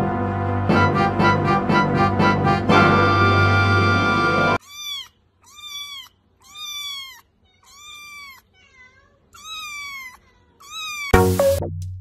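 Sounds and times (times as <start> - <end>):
background music: 0.0 - 4.6, 11.2 - 12.0
kitten meowing: 4.6 - 11.2.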